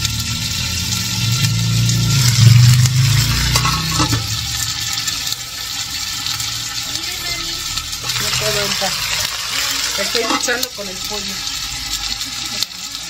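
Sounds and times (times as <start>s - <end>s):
low hum: 0.0s - 6.7s
chicken sizzling in pot: 0.0s - 13.0s.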